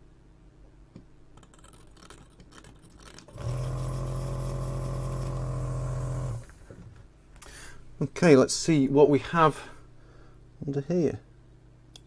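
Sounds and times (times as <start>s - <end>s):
desoldering pump buzzing: 3.3s - 6.6s.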